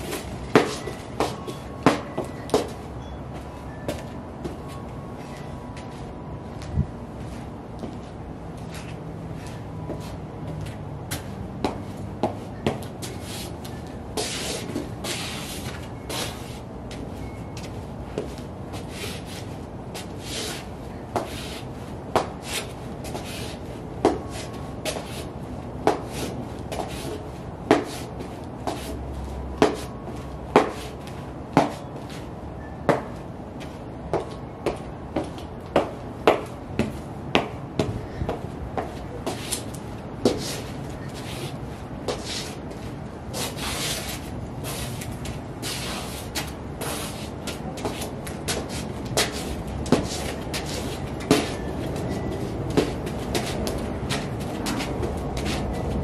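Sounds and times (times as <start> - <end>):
boot soles scraping: 0.0 - 2.8, 7.2 - 17.0, 17.6 - 29.0, 29.6 - 32.3, 38.8 - 56.0
boots tapping on concrete: 0.0 - 4.8, 7.8 - 8.1, 8.7 - 17.0, 25.8 - 29.0, 29.6 - 32.2, 32.9 - 41.5, 43.4 - 56.0.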